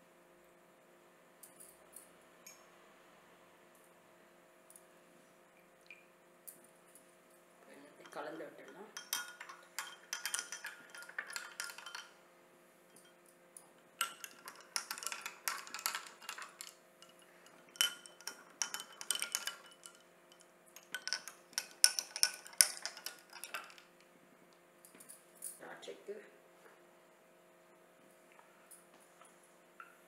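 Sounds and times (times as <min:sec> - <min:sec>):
spoon clinking against glass: 0:08.0 - 0:12.2, 0:12.9 - 0:13.4, 0:14.0 - 0:23.8.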